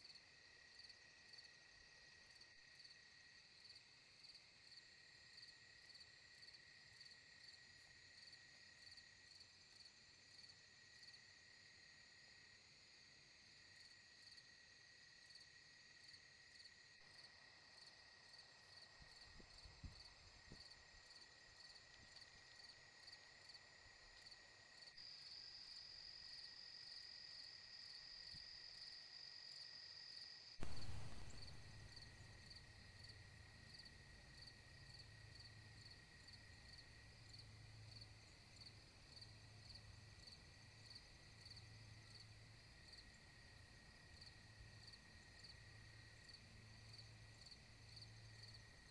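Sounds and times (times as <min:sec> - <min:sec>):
crickets and insects chirping: 0:00.0 - 0:48.9
loud thump: 0:30.6 - 0:32.6
low pulsing hum: 0:30.6 - 0:33.7.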